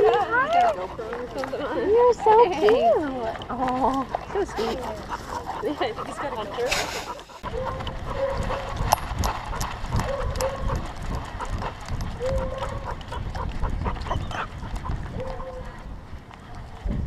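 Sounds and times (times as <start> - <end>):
harness clicks and rattles: 7.6 - 13.3.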